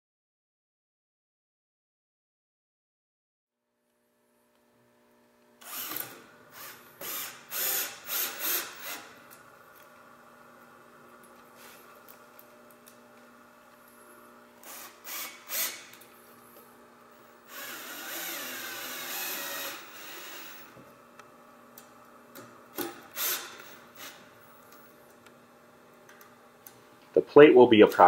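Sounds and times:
cordless drill driving screw: 0:05.6 - 0:09.2, 0:14.6 - 0:16.1, 0:17.4 - 0:20.8, 0:22.7 - 0:24.9.

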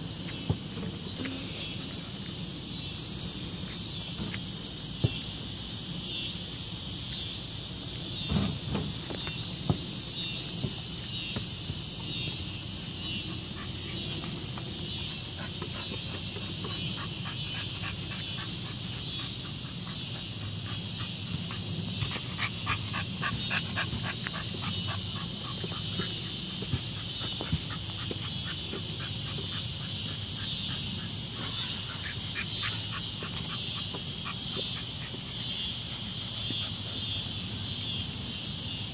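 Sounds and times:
chorus of insects: 0:00.0 - 0:38.9
dog panting: 0:13.2 - 0:37.4.

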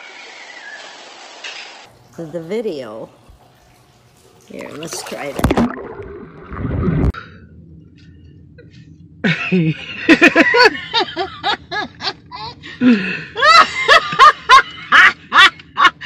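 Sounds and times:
laughter: 0:09.2 - 0:16.0.

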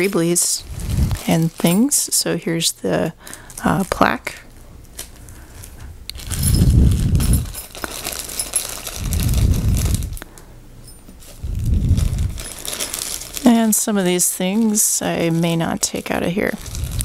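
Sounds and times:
plastic crinkling: 0:00.0 - 0:02.2, 0:03.2 - 0:10.4, 0:11.0 - 0:17.0
metal parts clinking in plastic bags: 0:00.0 - 0:02.3, 0:02.9 - 0:04.4, 0:05.0 - 0:17.0
low muffled rumbles: 0:00.6 - 0:01.6, 0:05.3 - 0:10.2, 0:10.8 - 0:13.1, 0:16.6 - 0:17.0.

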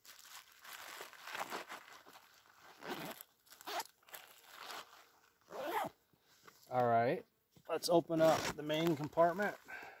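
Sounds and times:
plastic bags crinkling: 0:00.0 - 0:05.3
nylon backpack rustling: 0:00.0 - 0:06.0, 0:08.1 - 0:10.0
zipper closing: 0:02.7 - 0:06.0, 0:08.2 - 0:08.6.

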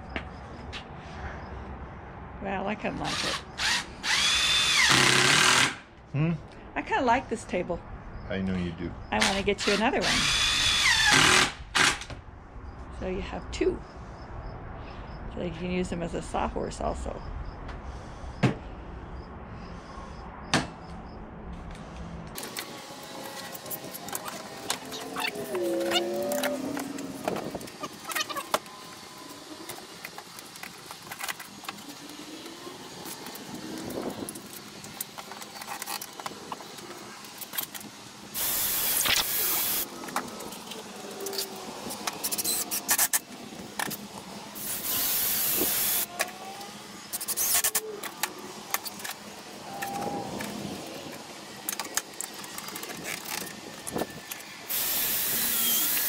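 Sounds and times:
cordless drill bursts: 0:03.1 - 0:05.8, 0:09.2 - 0:12.0, 0:38.4 - 0:39.9, 0:44.6 - 0:46.1, 0:54.7 - 0:56.0.

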